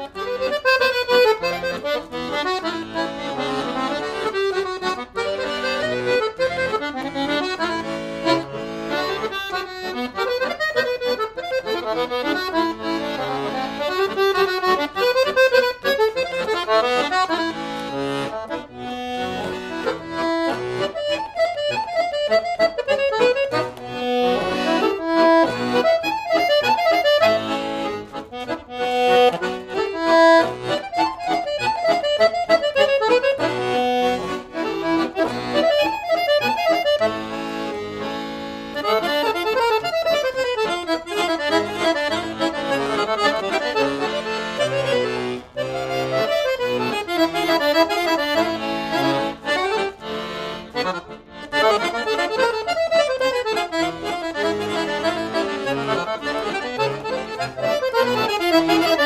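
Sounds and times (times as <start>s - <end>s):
accordion folk dance tune: 0.0s - 59.0s.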